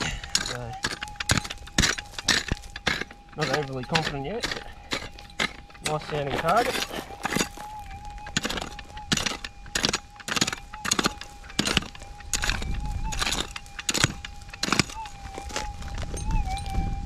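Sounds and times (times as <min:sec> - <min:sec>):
hand pick digging stony ground: 0:00.0 - 0:17.0
metal detector electronic tone: 0:00.0 - 0:17.0.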